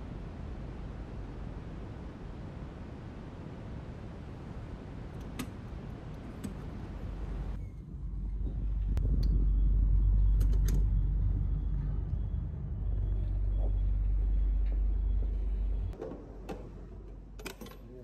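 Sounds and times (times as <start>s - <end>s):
loud low rumble: 7.5s - 16.0s.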